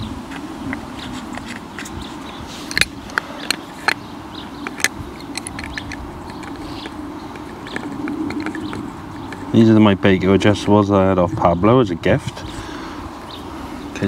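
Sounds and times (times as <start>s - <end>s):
metal clicks and light scrapes: 0.2s - 10.5s.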